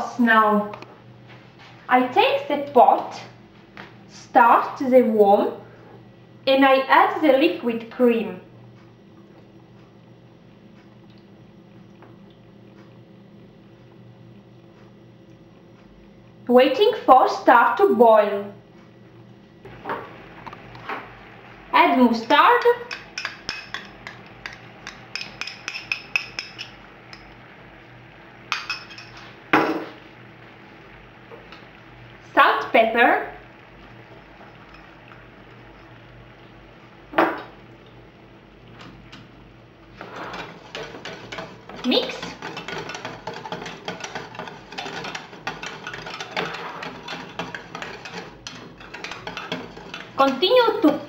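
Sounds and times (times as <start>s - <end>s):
utensil scraping and clinking pan: 22.8s - 27.3s, 28.5s - 29.3s, 40.0s - 51.0s.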